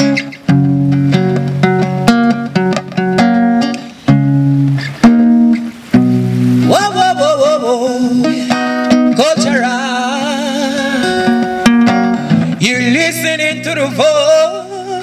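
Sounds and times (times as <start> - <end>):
acoustic guitar strumming: 0.0 - 15.0
man singing: 6.6 - 15.0.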